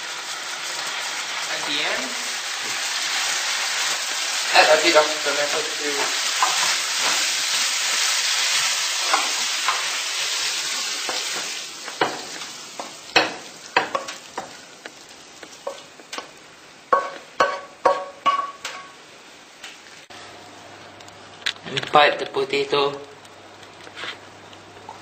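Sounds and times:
meat filling sizzling in frying pan: 0.0s - 20.1s
spoon scraping and tapping pan: 16.9s - 18.9s.

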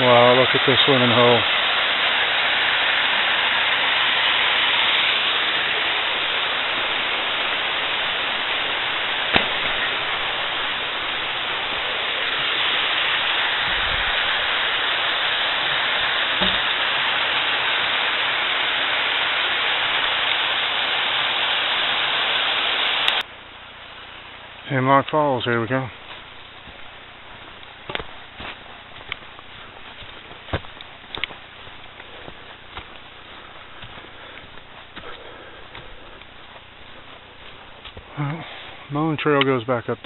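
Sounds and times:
waterfall rushing into pool: 0.0s - 23.3s.

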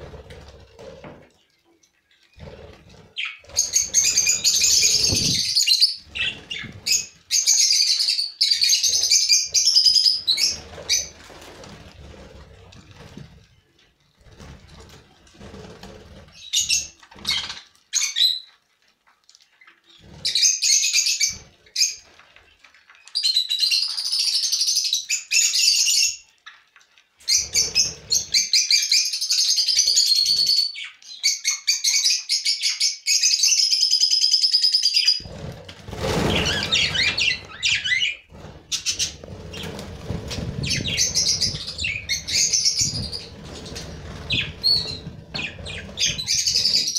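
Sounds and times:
fluttering wings: 2.4s - 7.5s, 8.6s - 17.7s, 35.2s - 46.9s.

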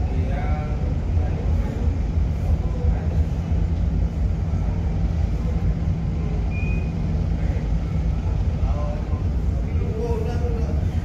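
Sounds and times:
ship engines rumbling: 0.0s - 11.0s.

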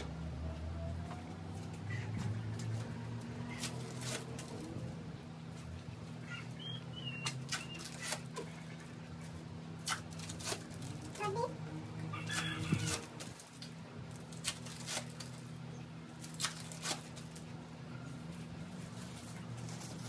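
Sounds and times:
bird chirping: 6.1s - 8.0s
plastic bag rustling: 12.7s - 20.0s.

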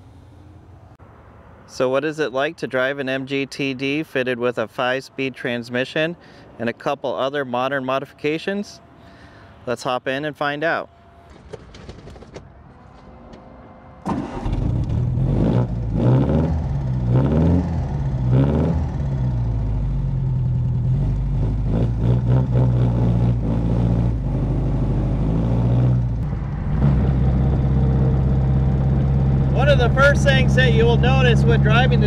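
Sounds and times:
car engine starting and revving: 14.0s - 32.0s.

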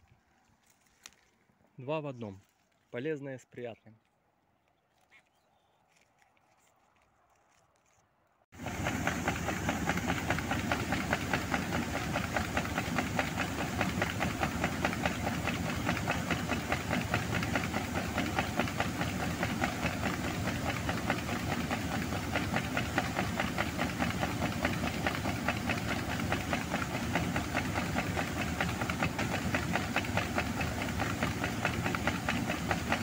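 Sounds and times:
auger rattling: 8.6s - 33.0s
combine harvester running: 8.6s - 33.0s.

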